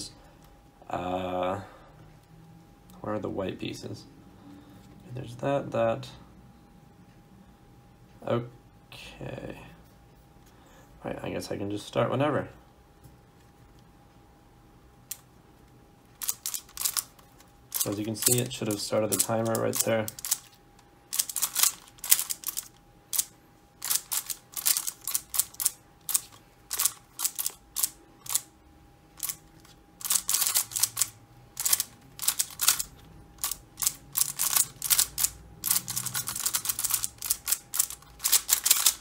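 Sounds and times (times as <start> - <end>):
puzzle cube plastic clicking: 16.2 - 28.5, 29.2 - 39.0.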